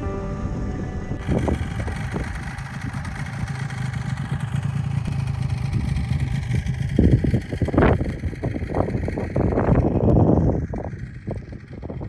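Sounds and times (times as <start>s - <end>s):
snowmobile engine idling: 0.0s - 12.0s.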